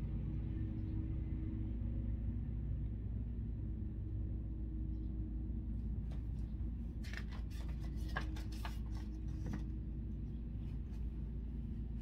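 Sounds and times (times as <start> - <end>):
steady low hum: 0.0 - 12.0
paper pages rustling: 6.2 - 9.8.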